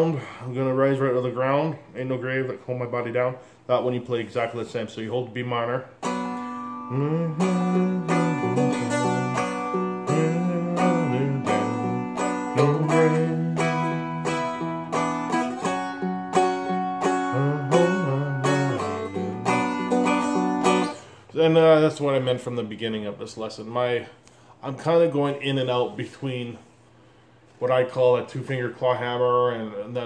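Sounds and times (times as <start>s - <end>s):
dulcimer strumming and picking: 6.0s - 21.1s.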